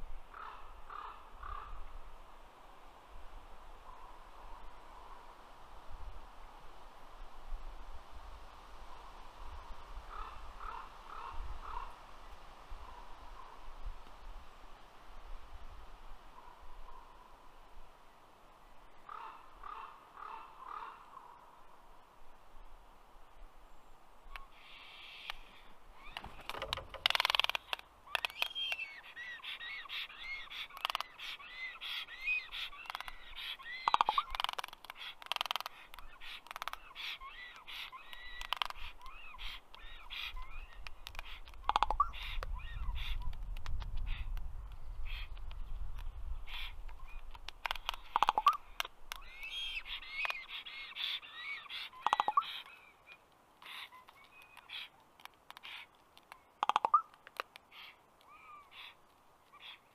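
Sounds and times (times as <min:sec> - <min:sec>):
raven clicking calls: 0:00.3 - 0:02.0, 0:10.1 - 0:12.0, 0:18.9 - 0:21.5, 0:24.3 - 0:59.9
raven rasping calls: 0:00.3 - 0:02.0, 0:10.1 - 0:12.0, 0:19.0 - 0:21.5, 0:24.4 - 0:43.3, 0:45.0 - 0:45.4, 0:46.5 - 0:59.9.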